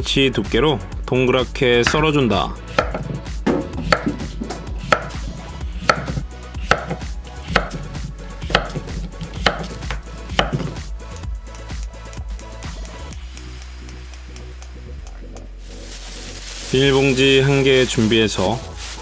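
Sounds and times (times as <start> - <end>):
knife chopping on wooden board: 2.7 - 10.8.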